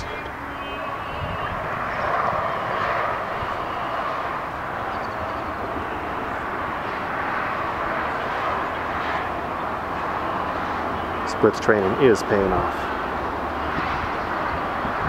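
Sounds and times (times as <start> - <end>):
distant engine drone: 0.0 - 15.0.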